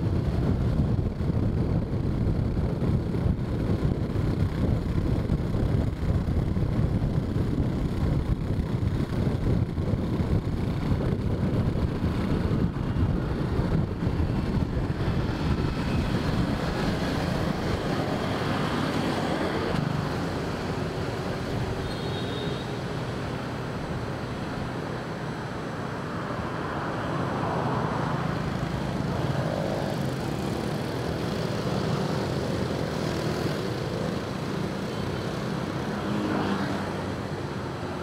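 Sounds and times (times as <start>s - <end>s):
wind on microphone: 0.0s - 22.0s
passing road traffic hum: 0.0s - 38.0s.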